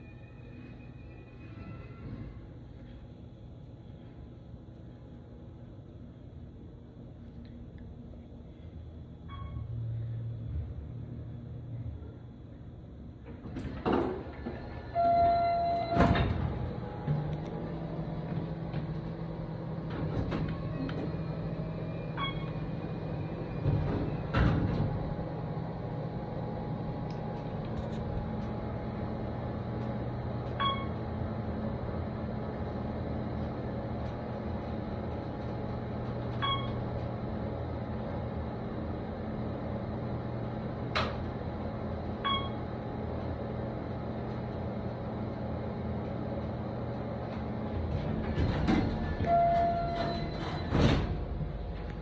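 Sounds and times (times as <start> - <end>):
elevator hum: 0.0 - 52.0
elevator doors sliding: 13.2 - 52.0.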